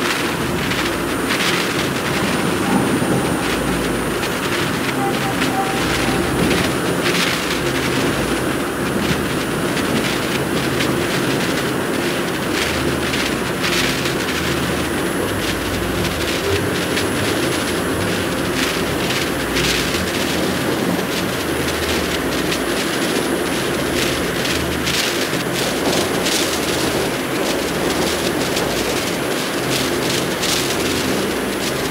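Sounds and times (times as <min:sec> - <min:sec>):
crackles: 0:00.0 - 0:31.9
low rumble: 0:01.1 - 0:09.3.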